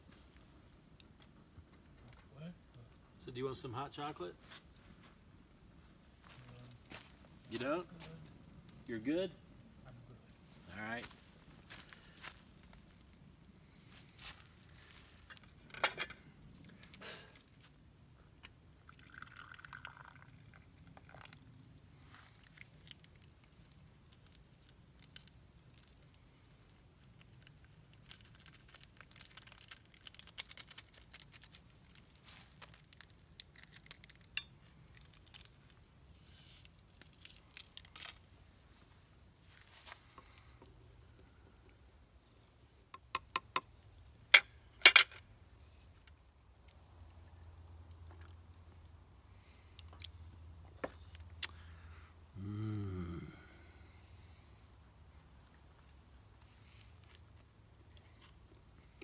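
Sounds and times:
liquid pouring into a wooden cup: 0:18.7 - 0:21.6.

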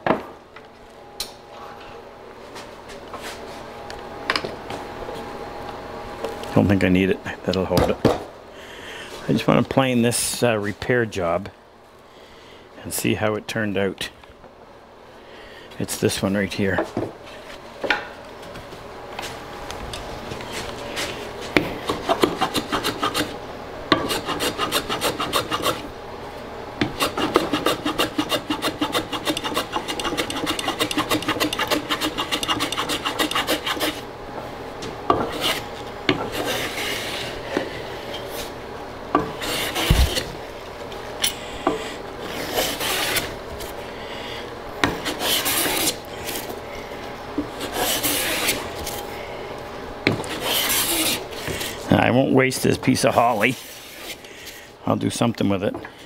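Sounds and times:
hand plane shaving wood: 0:21.8 - 0:23.4, 0:24.0 - 0:25.8, 0:26.9 - 0:34.0, 0:36.3 - 0:37.4, 0:39.4 - 0:40.3, 0:42.2 - 0:43.3, 0:45.0 - 0:46.0, 0:47.5 - 0:48.8, 0:50.1 - 0:51.6.

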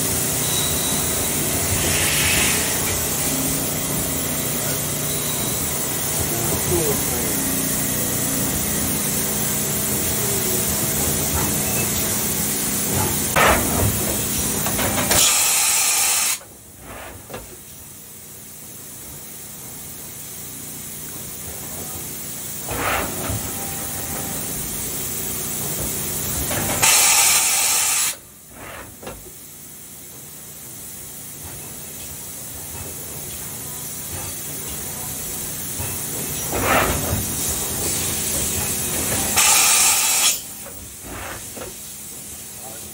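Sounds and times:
machining center running: 0:00.0 - 0:15.1
coolant spray hiss: 0:01.2 - 0:05.0, 0:05.6 - 0:16.4, 0:24.3 - 0:28.2, 0:33.9 - 0:42.9.

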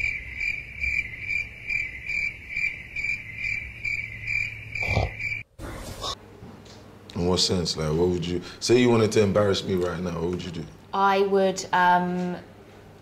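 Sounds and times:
crickets chirping: 0:00.0 - 0:05.5.

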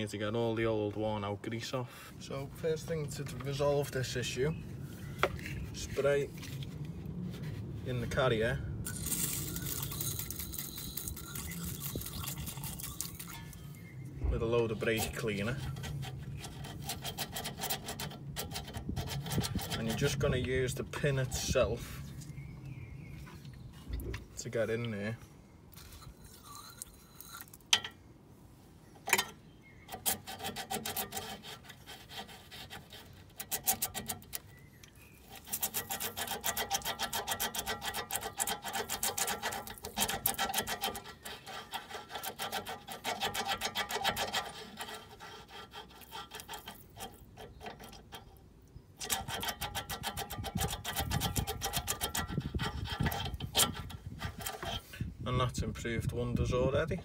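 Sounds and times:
metal pin scraping in bore: 0:07.9 - 0:22.4, 0:25.7 - 0:28.0, 0:29.0 - 0:55.2.

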